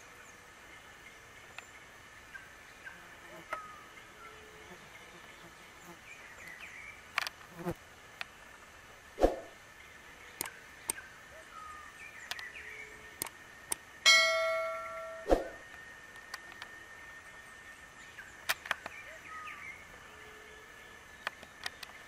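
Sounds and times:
sharp clicks: 10.4s - 11.0s, 12.2s - 12.5s, 13.2s - 13.8s
bell-like ding: 14.1s - 15.3s
bird chirps: 14.2s - 15.7s, 16.5s - 22.0s.

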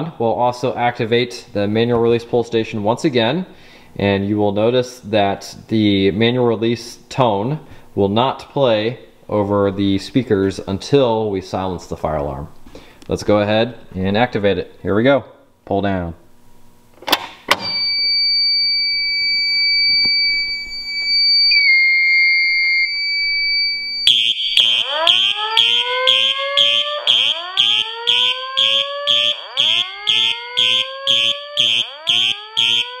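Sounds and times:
high electronic alarm tone: 17.6s - 33.0s
electronic horn blasts: 23.8s - 33.0s.

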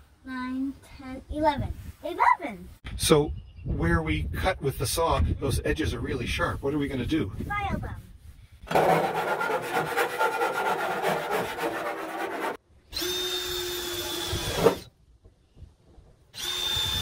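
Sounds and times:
file scraping sheet metal: 8.7s - 12.6s
cordless drill whining: 12.9s - 14.9s, 16.4s - 17.0s.

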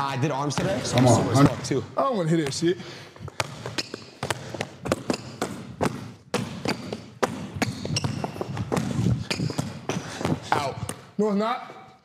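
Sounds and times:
basketball bouncing on court floor: 2.4s - 11.1s.

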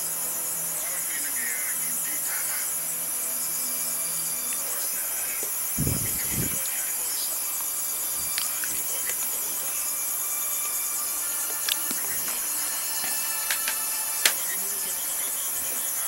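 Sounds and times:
microphone background hiss: 4.3s - 16.0s
dull low thumps: 5.8s - 6.6s.

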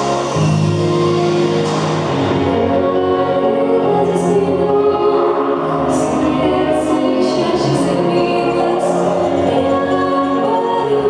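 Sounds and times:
pop backing track: 0.0s - 11.0s
girl singing: 2.5s - 11.0s.

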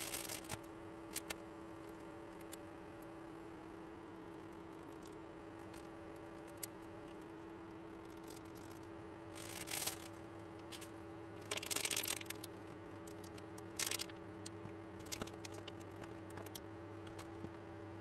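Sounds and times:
rustling crinkling handling noise: 9.4s - 16.6s.

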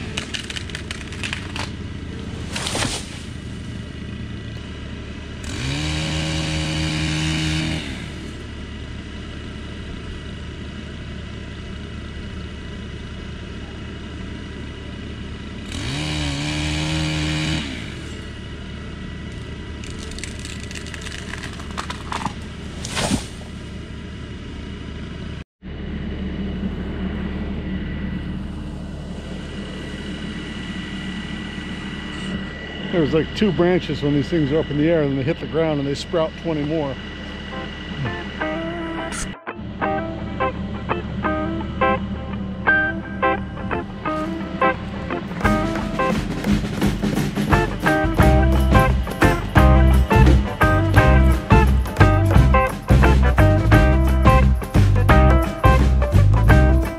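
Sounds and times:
engine idling: 0.0s - 56.9s
chainsaw revving: 5.3s - 8.7s, 15.5s - 23.7s, 45.4s - 56.8s.

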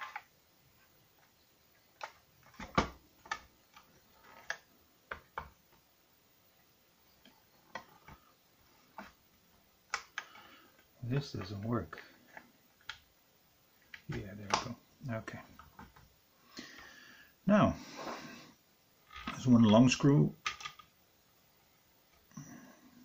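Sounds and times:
plastic parts clicking and knocking: 0.0s - 0.3s, 1.9s - 5.8s, 7.2s - 8.3s, 9.9s - 10.9s, 15.5s - 16.1s, 20.4s - 20.9s.

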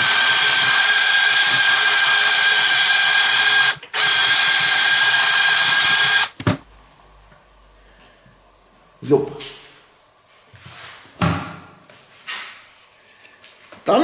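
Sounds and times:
power tool wire brush whining: 0.0s - 6.4s.

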